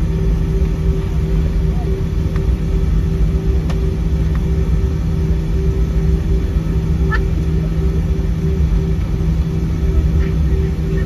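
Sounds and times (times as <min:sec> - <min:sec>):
vehicle engine rumble: 0:00.0 - 0:11.0.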